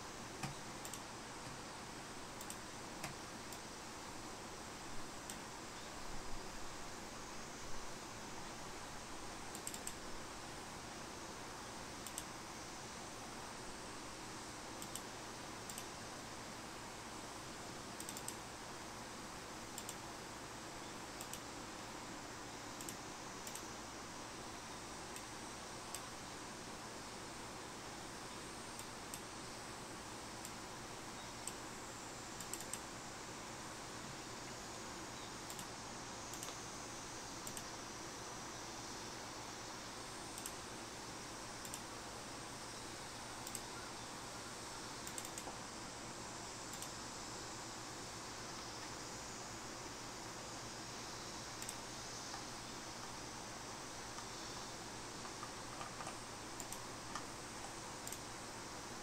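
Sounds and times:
steady hiss: 0.0s - 59.0s
computer mouse clicks: 0.4s - 1.6s, 2.4s - 3.6s, 9.5s - 10.0s, 12.0s - 12.3s, 14.8s - 15.1s, 15.7s - 15.9s, 18.0s - 18.4s, 19.8s - 20.0s, 21.2s - 21.5s, 22.8s - 23.7s, 25.9s - 26.1s, 28.8s - 29.3s, 32.4s - 32.9s, 35.5s - 35.7s, 36.3s - 36.6s, 37.4s - 37.7s, 40.3s - 40.6s, 41.6s - 41.9s, 43.4s - 43.7s, 45.0s - 45.6s, 46.7s - 47.0s, 51.6s - 53.2s, 55.2s - 58.3s.

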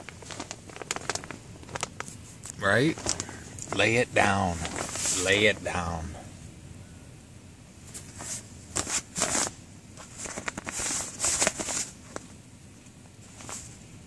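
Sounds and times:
hand stroking cat fur rustling: 4.6s - 5.4s.

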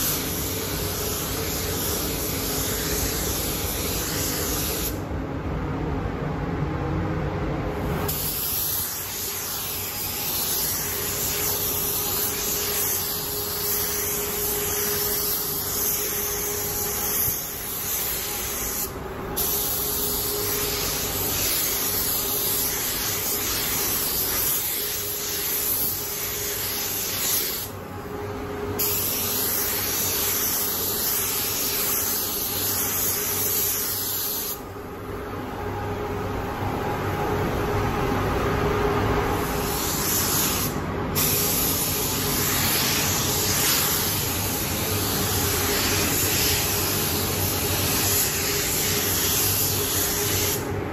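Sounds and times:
paint spray gun hissing: 0.0s - 5.0s, 8.0s - 27.8s, 28.8s - 34.6s, 39.5s - 50.7s.

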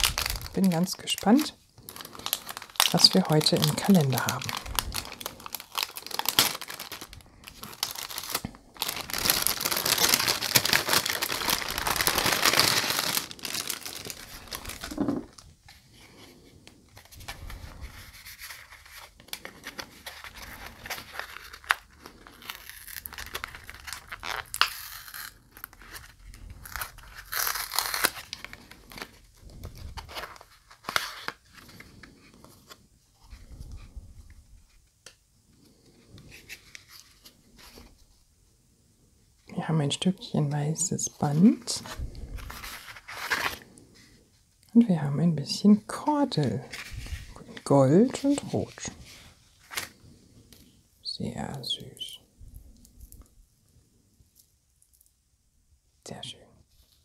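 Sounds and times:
paper tearing and rustling: 0.0s - 15.3s, 17.2s - 32.8s, 41.8s - 43.6s, 48.1s - 50.0s.

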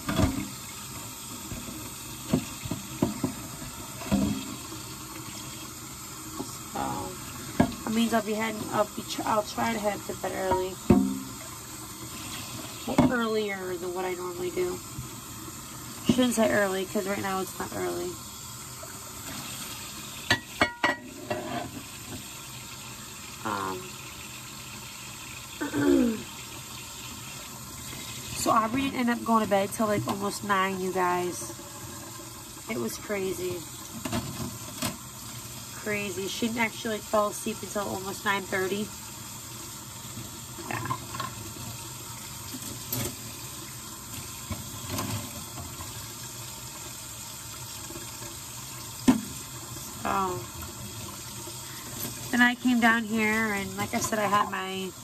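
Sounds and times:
tap running into sink: 0.0s - 6.6s, 7.3s - 8.0s, 9.6s - 13.4s, 47.6s - 49.9s
tap water running into sink: 0.0s - 55.0s
dishes clinking: 20.3s - 21.6s.

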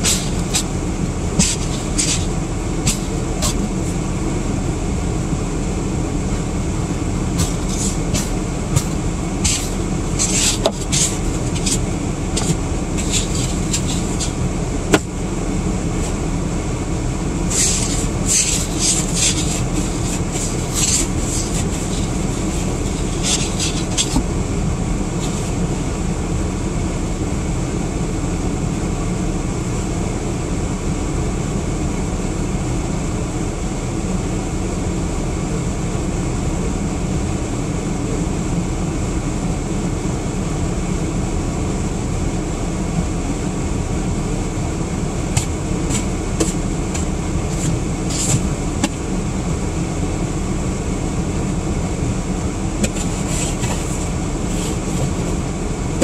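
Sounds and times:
car engine idling: 0.0s - 26.9s, 42.2s - 56.0s
car heater fan blowing: 0.0s - 56.0s.

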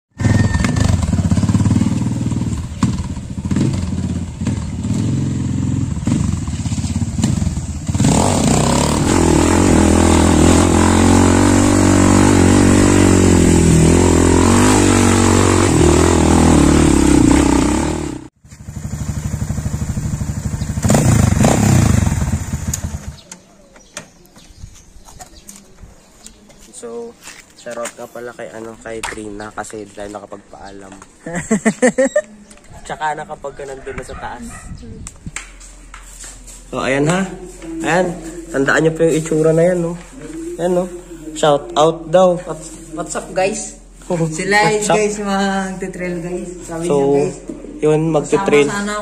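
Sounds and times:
motorcycle engine revving: 0.1s - 23.4s.

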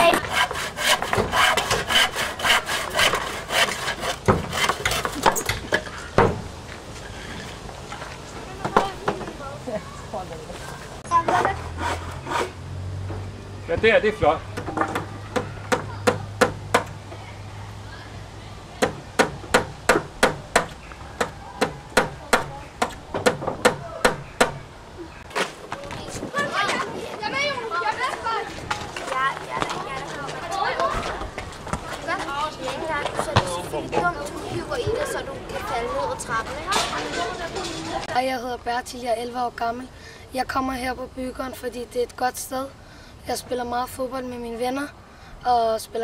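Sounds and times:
hand saw cutting wood: 0.0s - 5.4s, 11.3s - 12.6s
hammer striking wooden planks: 14.6s - 16.9s, 18.8s - 22.5s, 23.2s - 24.6s.

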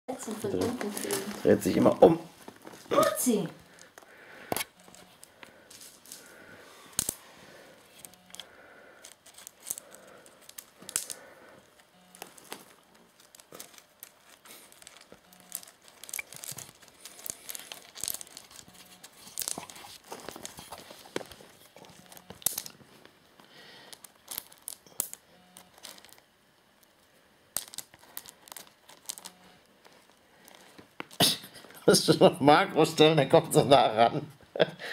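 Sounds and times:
stone chips crunching under paws: 9.0s - 22.8s, 23.8s - 26.2s, 27.6s - 29.4s.

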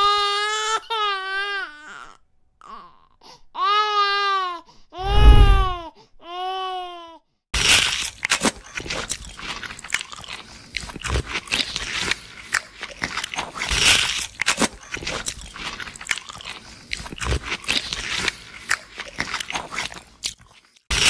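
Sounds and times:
infant crying: 0.0s - 7.2s
crackly biting and chewing: 7.6s - 21.0s.

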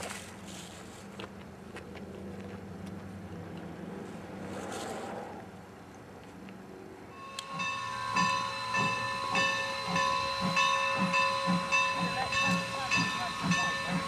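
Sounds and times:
high-pitched ringing tone: 7.1s - 14.0s
locomotive rumble: 7.1s - 14.0s
steam locomotive chuffing: 7.2s - 14.0s
hiss of steam: 7.4s - 14.0s.

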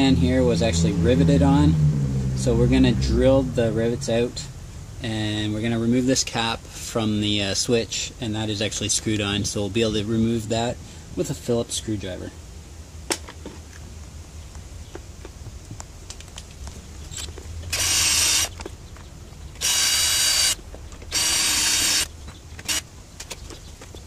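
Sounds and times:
cordless drill bursts: 17.7s - 18.6s, 19.6s - 22.9s.

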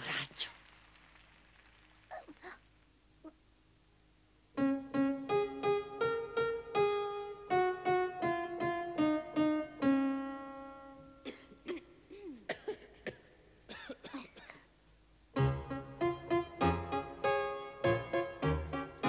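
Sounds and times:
grand piano slow melody: 4.5s - 12.2s, 15.3s - 19.0s.

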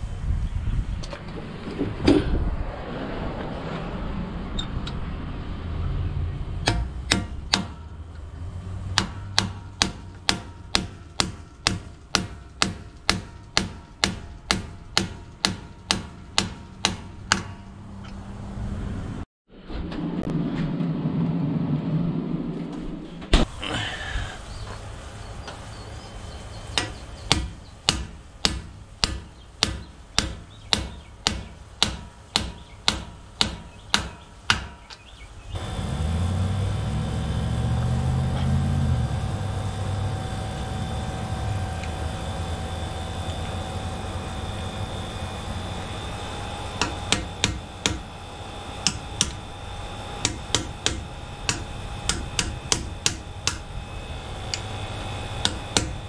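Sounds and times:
low rumble: 0.0s - 12.2s, 16.7s - 29.0s, 35.3s - 56.0s
hammer blows on metal: 26.6s - 35.1s, 46.7s - 53.7s, 54.5s - 56.0s.

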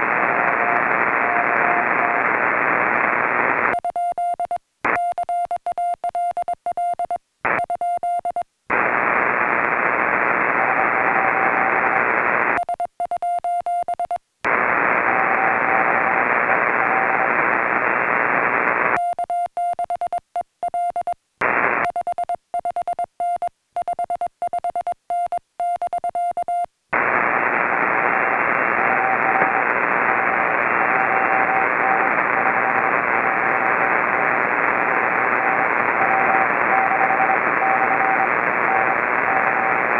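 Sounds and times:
radio receiver hiss: 0.0s - 3.8s, 8.7s - 12.6s, 14.5s - 19.0s, 21.4s - 21.9s, 26.9s - 39.9s
faint morse signal beeps: 0.2s - 8.5s, 10.4s - 14.2s, 14.8s - 21.2s, 21.8s - 26.7s, 27.3s - 39.9s
morse code beeping: 19.0s - 21.2s, 21.8s - 26.7s.

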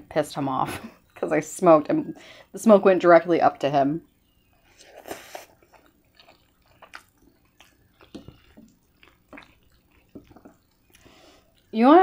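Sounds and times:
chewing and lip-smacking: 4.6s - 11.8s
slurping spaghetti: 4.7s - 11.7s.

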